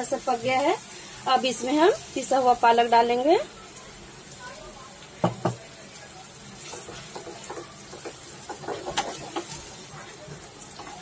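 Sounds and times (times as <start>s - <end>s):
faint sizzle: 0.0s - 11.0s
spatula scraping frying pan: 6.6s - 11.0s.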